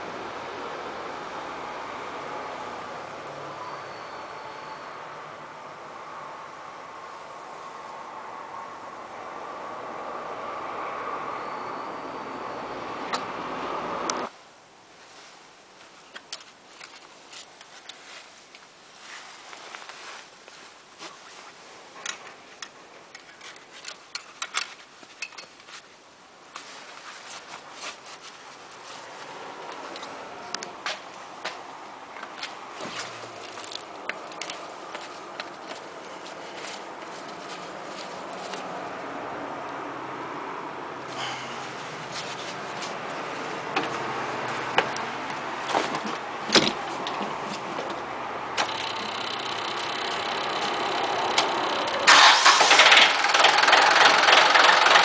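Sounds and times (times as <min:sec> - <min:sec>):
steady background noise: 0:00.0 - 0:55.0
cloth rubbing: 0:17.0 - 0:21.9, 0:26.6 - 0:30.0, 0:34.6 - 0:38.8, 0:41.5 - 0:44.6.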